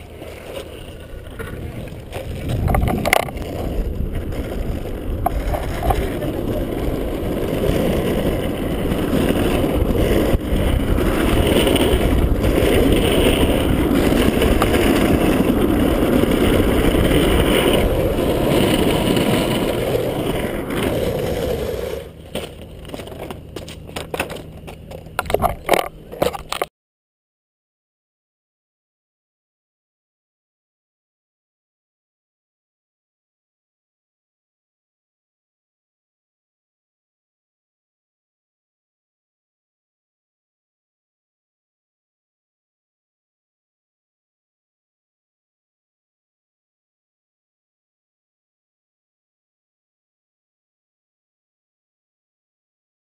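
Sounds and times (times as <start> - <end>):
wheels rolling over asphalt: 0.0 - 26.7.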